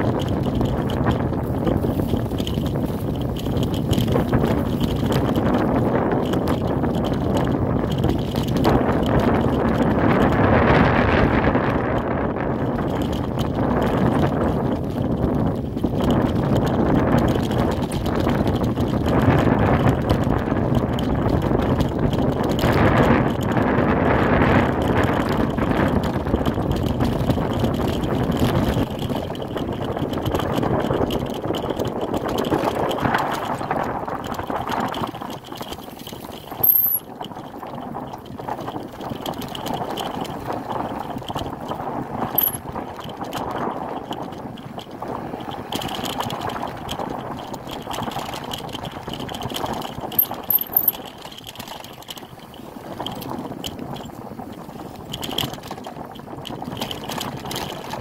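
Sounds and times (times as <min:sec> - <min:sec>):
tyre and wind noise: 0:00.0 - 0:58.0
short sharp rattles: 0:36.6 - 0:37.0, 0:42.4 - 0:42.6, 0:50.2 - 0:51.0.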